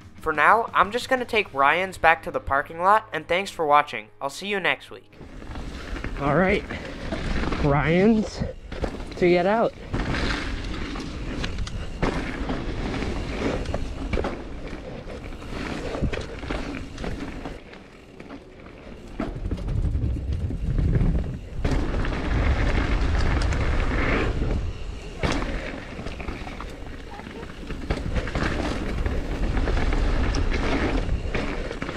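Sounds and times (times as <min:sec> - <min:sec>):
bike knocking and rattling: 0:05.2 - 0:31.9
bike tyres rolling over dirt: 0:05.2 - 0:31.9
heavy low rumble: 0:19.3 - 0:31.9.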